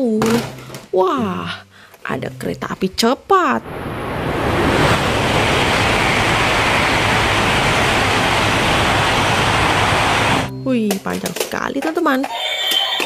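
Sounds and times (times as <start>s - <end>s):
train passing at speed: 3.6s - 10.5s.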